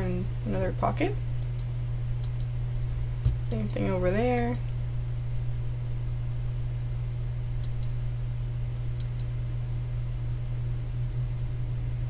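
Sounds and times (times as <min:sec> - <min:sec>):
low electrical hum: 0:00.0 - 0:12.0
computer mouse clicks: 0:01.4 - 0:02.5, 0:07.6 - 0:08.0, 0:09.0 - 0:09.3.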